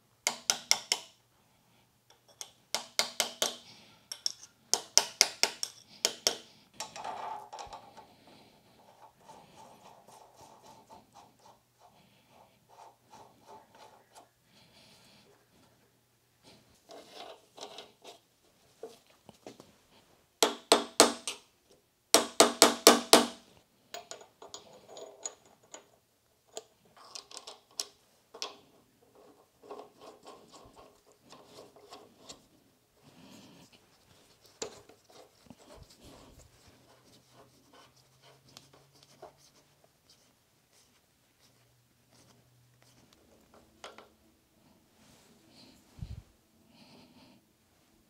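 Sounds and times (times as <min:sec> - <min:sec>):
light scraping and handling: 0:16.5 - 0:20.1, 0:28.3 - 0:44.2.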